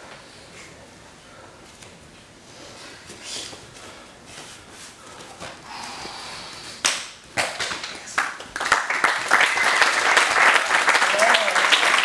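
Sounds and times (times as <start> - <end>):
sharp slaps: 6.8 - 8.4
audience applause: 8.2 - 12.0.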